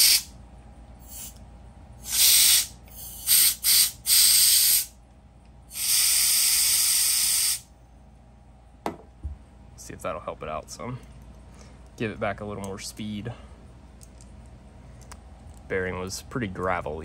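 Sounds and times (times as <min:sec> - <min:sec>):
compressed air bursts: 0:00.0 - 0:00.3, 0:01.0 - 0:01.4, 0:02.0 - 0:05.0, 0:05.7 - 0:07.7.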